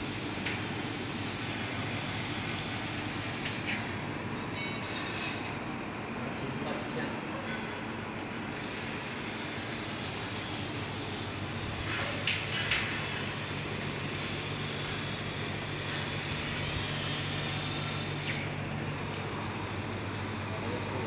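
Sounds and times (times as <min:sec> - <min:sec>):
high laser welding hiss: 0:00.0 - 0:03.7, 0:08.6 - 0:18.6
laser welding machine hum: 0:00.0 - 0:21.0.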